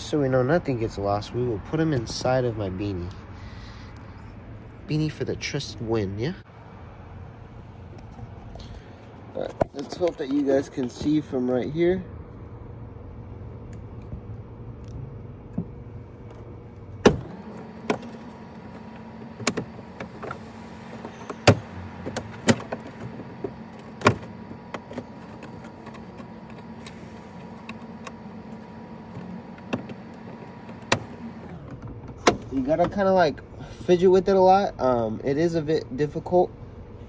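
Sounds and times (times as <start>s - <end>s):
steady machine hum: 10.0s - 37.0s.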